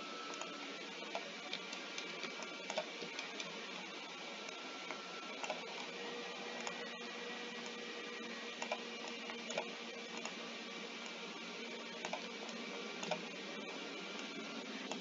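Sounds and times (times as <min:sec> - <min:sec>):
computer mouse clicks: 0:00.3 - 0:03.8, 0:04.5 - 0:05.9, 0:06.6 - 0:06.8, 0:08.6 - 0:10.4, 0:12.0 - 0:13.3, 0:14.1 - 0:15.0.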